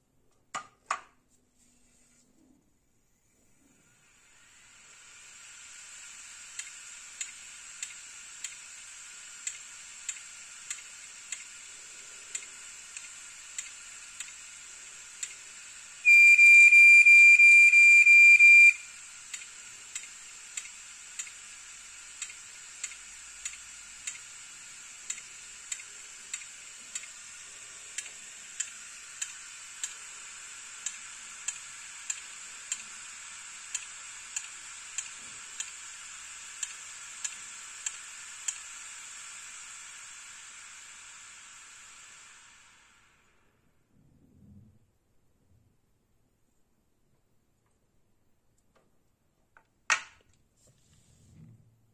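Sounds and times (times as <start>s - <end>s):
spinning platter hiss: 3.3s - 16.5s, 18.6s - 43.7s
hard drive head ticking: 6.5s - 15.7s, 19.3s - 27.3s
loud high steady tone: 16.1s - 19.0s.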